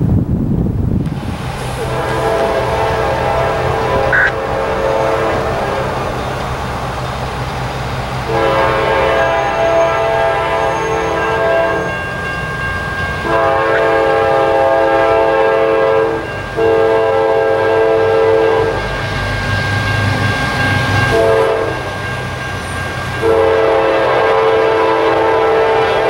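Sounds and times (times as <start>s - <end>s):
train rumble: 0.0s - 26.0s
train air horn blasts: 1.8s - 6.0s, 8.3s - 12.0s, 13.2s - 18.9s, 21.1s - 21.9s, 23.2s - 26.0s.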